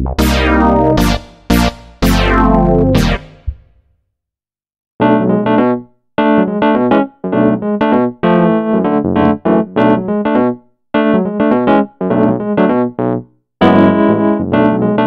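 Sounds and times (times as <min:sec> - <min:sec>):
electric piano chords with tremolo: 0:00.0 - 0:03.6, 0:13.7 - 0:15.0.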